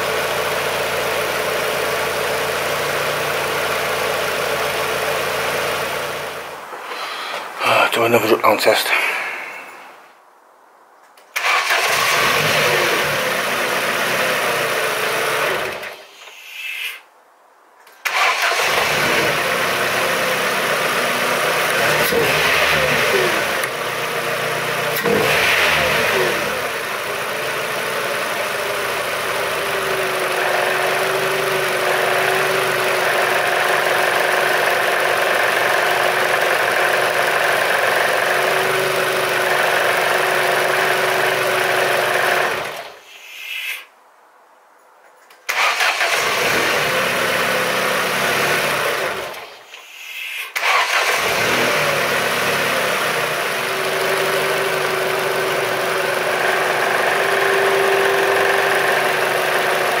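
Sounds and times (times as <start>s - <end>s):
car engine running: 0.0s - 6.6s, 18.5s - 42.8s, 46.1s - 49.3s, 50.7s - 60.0s.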